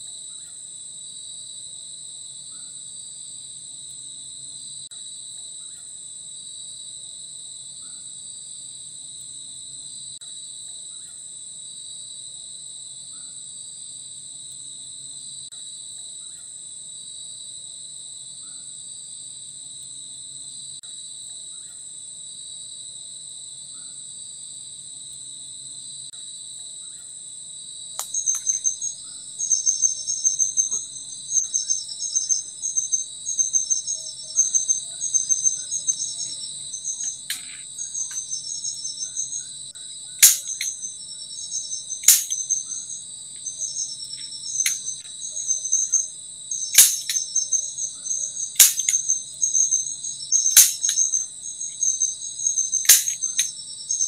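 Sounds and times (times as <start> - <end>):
insects chorus: 0.0 - 54.0
sharp knock: 40.2 - 40.7, 42.0 - 42.4, 46.8 - 47.2, 48.6 - 49.0, 50.6 - 51.0, 52.9 - 53.5.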